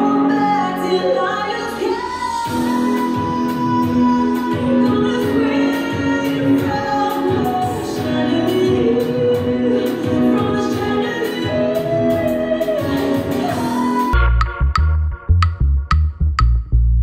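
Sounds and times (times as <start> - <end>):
steady music beat: 2.4 - 17.0.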